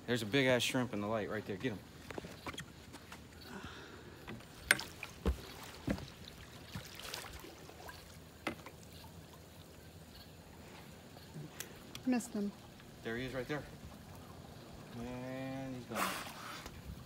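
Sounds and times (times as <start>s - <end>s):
net knocks and water splashes: 4.5s - 8.8s.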